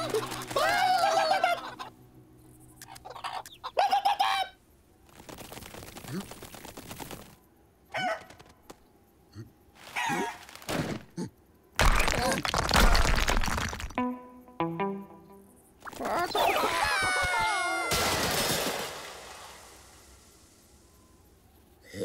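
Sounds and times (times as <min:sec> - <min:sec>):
cartoon chickens clucking: 0:00.0 - 0:01.9, 0:02.8 - 0:04.6, 0:07.9 - 0:08.5, 0:15.8 - 0:18.2
rock cracking and breaking: 0:11.8 - 0:14.0.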